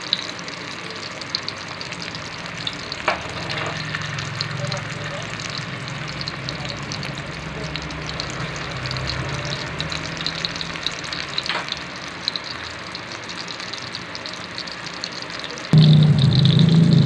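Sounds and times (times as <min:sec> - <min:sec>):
oil frying with pops: 0:00.0 - 0:17.0
low hum: 0:15.8 - 0:17.0.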